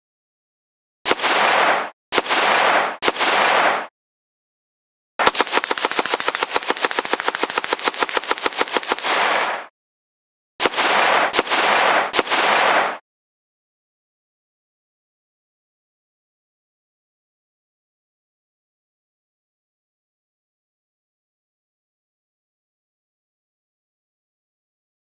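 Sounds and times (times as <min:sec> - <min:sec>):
automatic gunfire bursts: 0:01.1 - 0:03.9, 0:05.2 - 0:09.7, 0:10.6 - 0:13.0.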